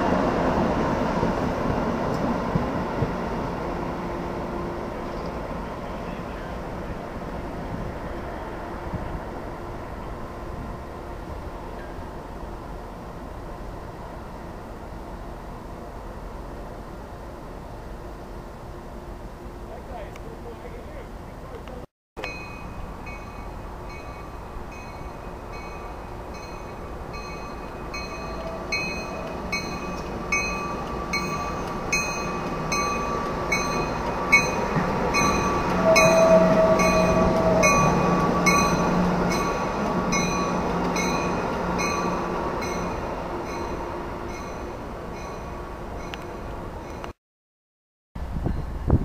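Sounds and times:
train rolling past: 0.0s - 47.2s
wheel squeal: 35.2s - 38.9s.

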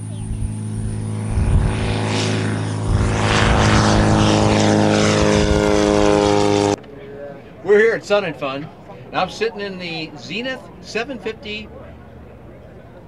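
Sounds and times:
light aircraft flying past: 0.0s - 6.8s.

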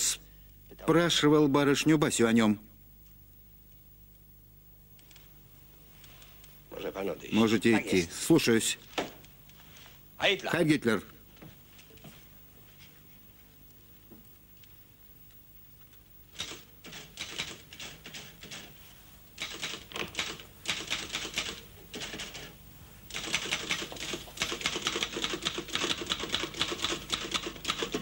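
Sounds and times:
manual typewriter typing: 16.3s - 18.8s, 19.4s - 28.0s.

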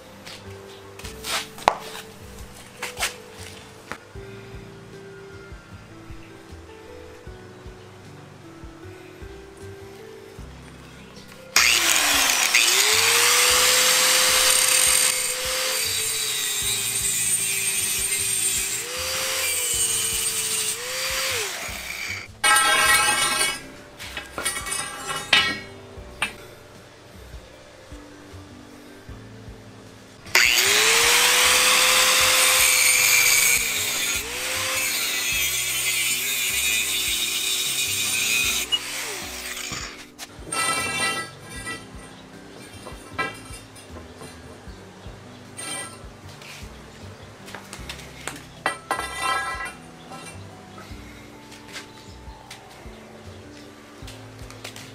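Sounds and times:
angle grinder cutting steel pipe: 11.6s - 25.7s, 30.3s - 41.9s, 48.7s - 50.4s.

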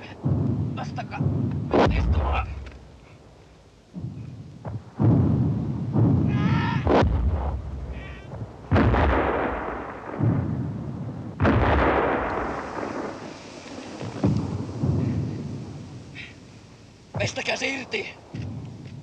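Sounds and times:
shell explosions: 0.0s - 19.0s
man crying out: 6.3s - 6.9s.

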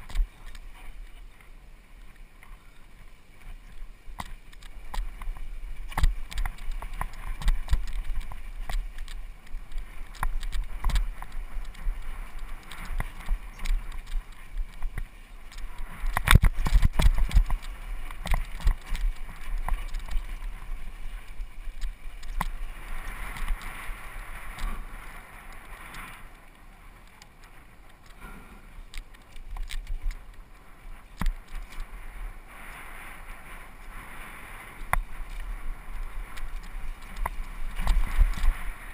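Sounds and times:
bike tyres over dirt and rocks: 0.0s - 38.9s
wind rumble on microphone: 0.0s - 38.9s
bike rattling and knocking: 4.2s - 20.7s.

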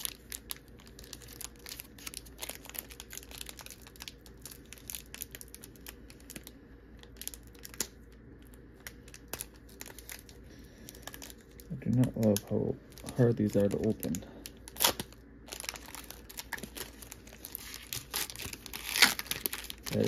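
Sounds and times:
card packaging crackling: 0.0s - 20.0s
faint steady hum: 0.0s - 20.0s.

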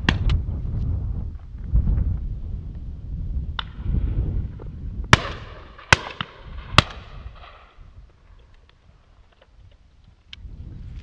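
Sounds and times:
shotgun shots with echo: 5.1s - 7.8s.

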